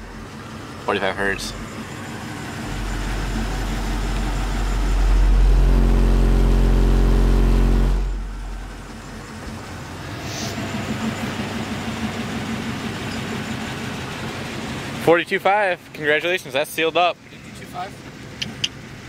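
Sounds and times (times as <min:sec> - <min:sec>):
buzzing subwoofer bass tone: 0:01.2 - 0:09.9.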